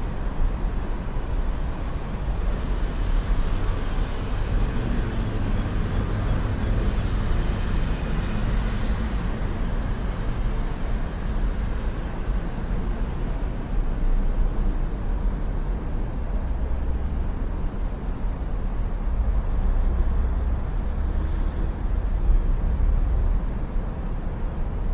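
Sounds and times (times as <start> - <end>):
street traffic rumble: 0.0 - 24.9
high even hiss: 3.5 - 7.4.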